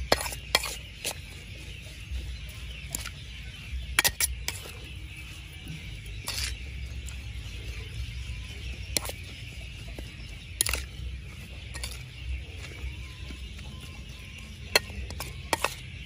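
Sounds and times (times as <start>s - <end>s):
metal utensils clinking on cookware: 11.7s - 12.1s, 14.7s - 15.9s.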